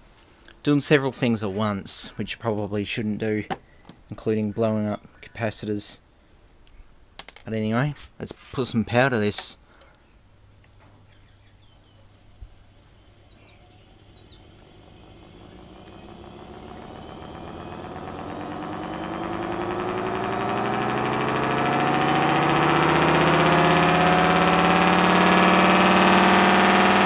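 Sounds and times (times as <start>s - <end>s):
air raid siren wailing: 13.8s - 26.7s.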